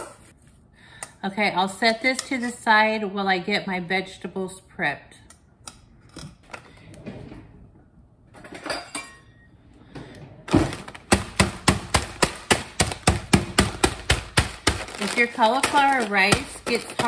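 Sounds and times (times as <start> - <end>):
mallet pounding frozen bag: 10.5 - 17.0.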